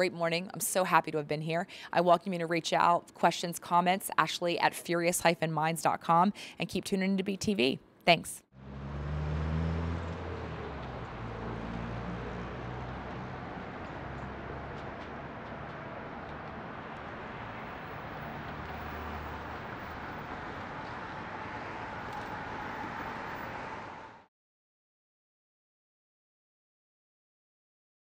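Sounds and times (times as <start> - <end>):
vehicle engine drone: 8.6 - 24.3.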